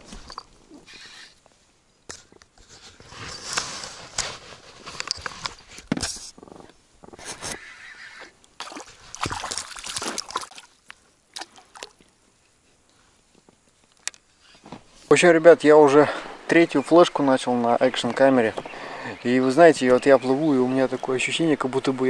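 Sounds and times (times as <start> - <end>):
paddle splashing in water: 8.6 - 10.8.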